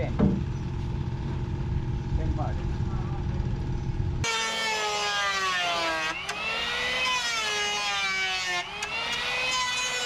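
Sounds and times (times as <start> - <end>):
electric power planer whining: 4.2 - 10.0.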